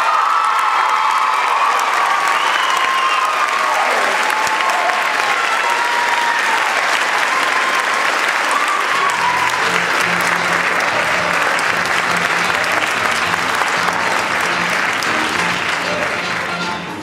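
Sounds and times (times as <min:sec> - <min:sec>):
high shouts: 0:00.0 - 0:14.6
audience applauding and cheering: 0:00.0 - 0:17.0
low bass music: 0:09.2 - 0:17.0.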